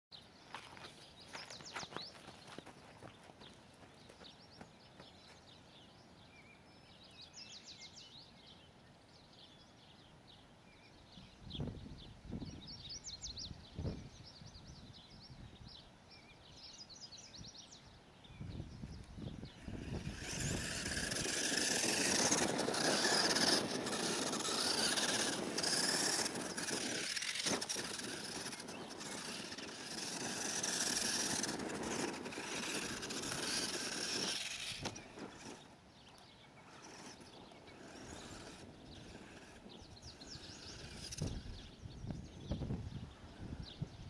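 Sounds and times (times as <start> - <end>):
electric motor and gears whining: 19.1 - 42.3
tyres churning on dirt: 19.5 - 41.7.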